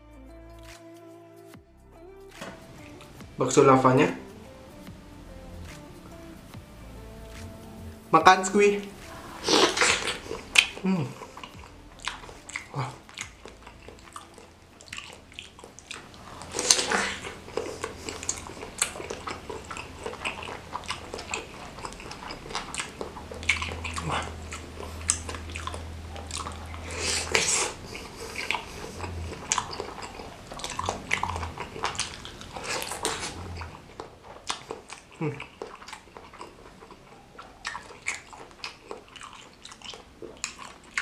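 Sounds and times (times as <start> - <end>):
person chewing with wet smacking: 5.6 - 41.0.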